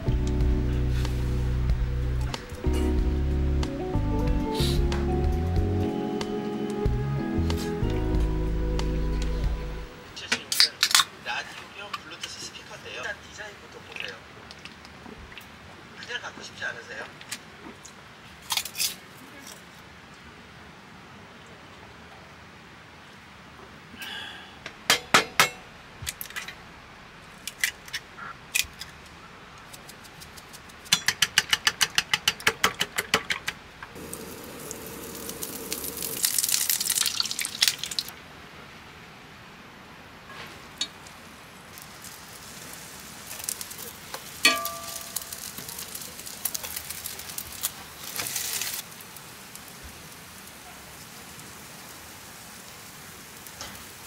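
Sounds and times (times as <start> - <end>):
utensils clicking and knocking: 29.8 - 33.6
hissing: 34.0 - 38.1.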